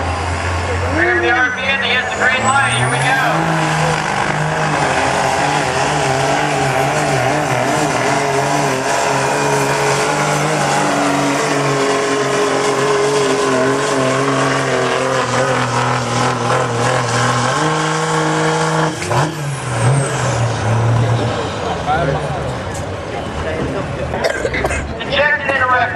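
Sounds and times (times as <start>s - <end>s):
diesel truck engine under load: 0.0s - 25.9s
high whine: 0.9s - 14.4s.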